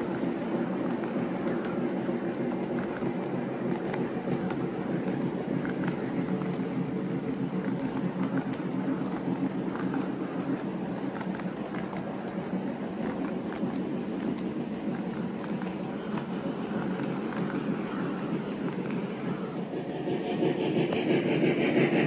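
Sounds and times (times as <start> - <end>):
model train wheels rumbling: 0.0 - 22.0.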